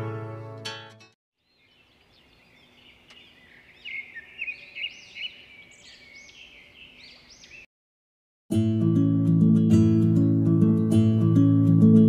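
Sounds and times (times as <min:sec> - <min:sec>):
birds chirping: 0:01.4 - 0:07.7.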